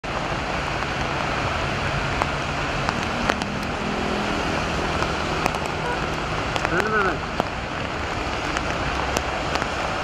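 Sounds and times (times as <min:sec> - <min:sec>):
traffic rumble on wet road: 0:00.0 - 0:10.0
heavy rain hissing: 0:00.1 - 0:10.0
sharp raindrop ticks: 0:02.1 - 0:03.9, 0:04.6 - 0:10.0.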